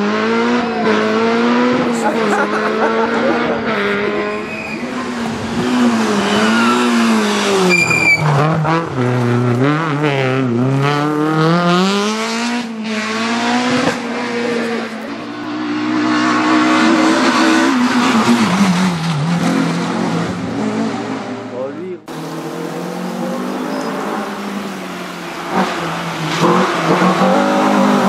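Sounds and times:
rally car engine revving: 0.0s - 28.0s
brief high squeal: 7.7s - 8.3s.

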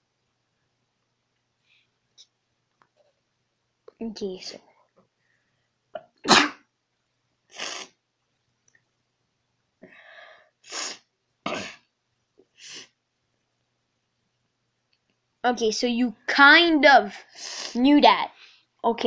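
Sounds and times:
person sneezing and coughing: 5.9s - 6.7s, 10.7s - 11.9s.

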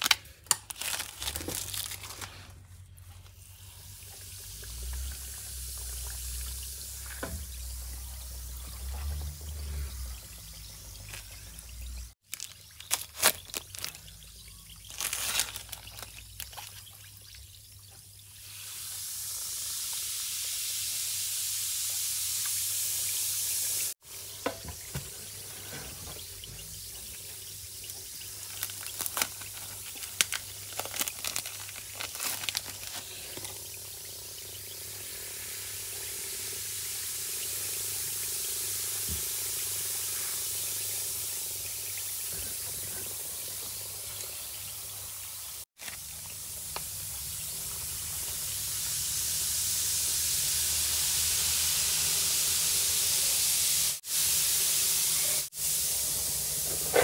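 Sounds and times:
bath bombs fizzing in water: 0.8s - 17.6s, 23.8s - 43.8s.

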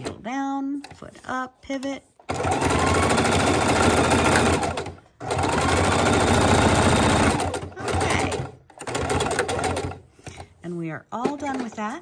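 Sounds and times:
sewing machine running: 2.3s - 10.1s.

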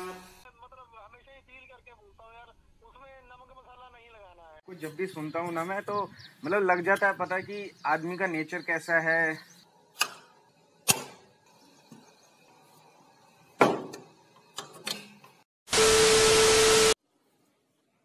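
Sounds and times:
metal slide bolt clacking: 13.9s - 15.4s.

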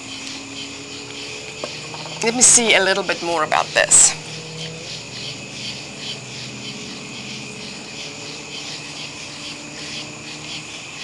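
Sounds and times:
high-pitched insect trill: 0.0s - 11.0s
insects chirping rhythmically: 0.0s - 11.0s.

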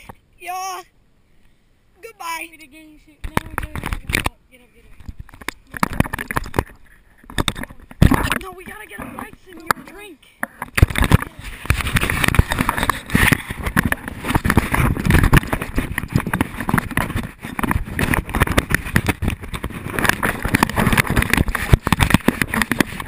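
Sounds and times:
camera handling noise: 3.2s - 4.3s, 10.4s - 23.0s.

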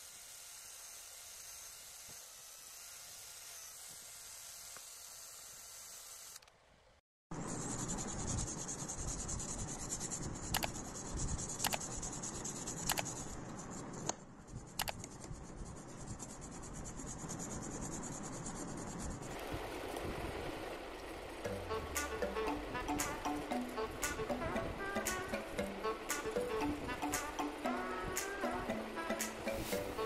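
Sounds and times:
sharp clicks: 10.5s - 10.8s, 14.8s - 15.2s.

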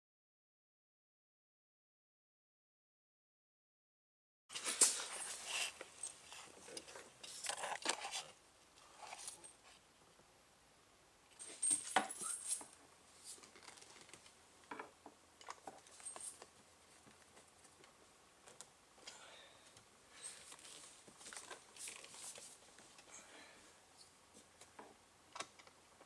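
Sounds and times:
metallic jingle: 11.4s - 12.7s.

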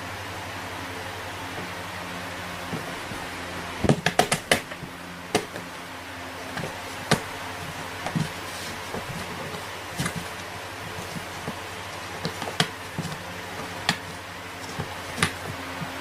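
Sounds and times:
steady low hum: 0.0s - 16.0s
cats knocking on cardboard box: 2.7s - 3.2s, 3.8s - 5.7s, 6.5s - 16.0s.

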